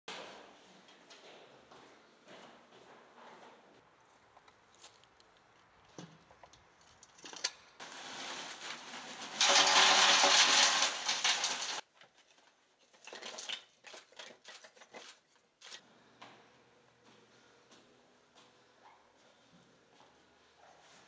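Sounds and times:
material rattling in metal bucket: 7.2 - 15.2.

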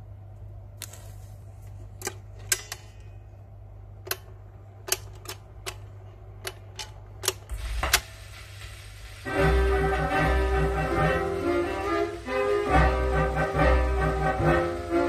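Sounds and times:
low hum: 7.5 - 15.0.

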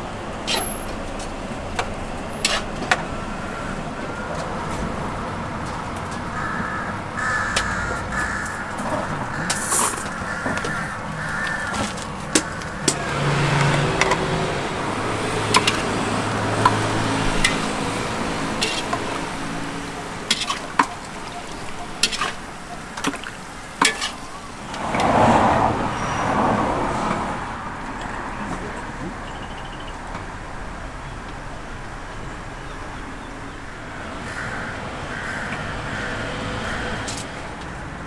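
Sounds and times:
vehicle engine passing: 0.0 - 38.0.

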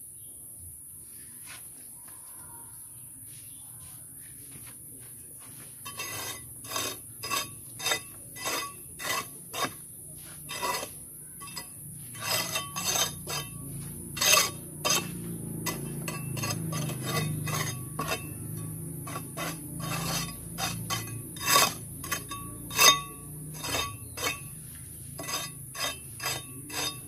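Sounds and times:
hand tool scraping concrete: 5.5 - 27.0.

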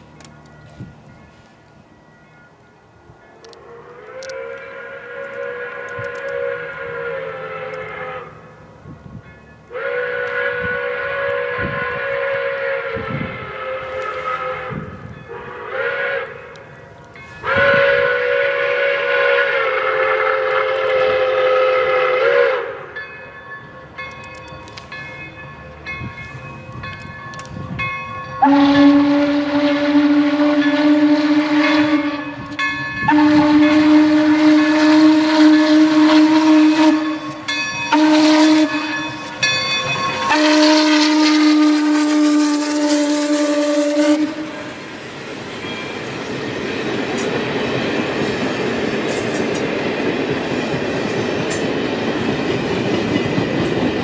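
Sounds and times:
lower steady whistle blast: 3.3 - 8.5, 9.6 - 23.0, 26.3 - 46.3
steam whistle blasts: 3.7 - 8.5, 9.7 - 16.6, 17.4 - 23.0, 28.4 - 44.9.

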